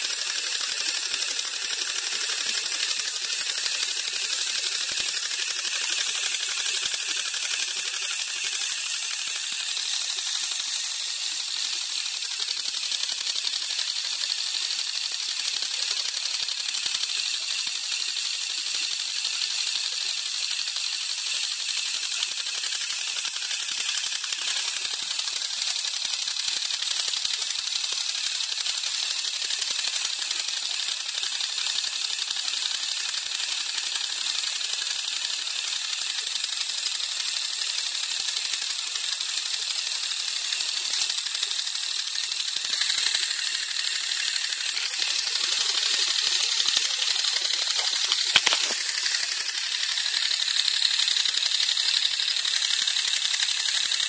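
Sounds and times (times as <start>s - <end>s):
toy compressor rattling: 0.0s - 54.0s
sharp click: 38.5s - 54.0s.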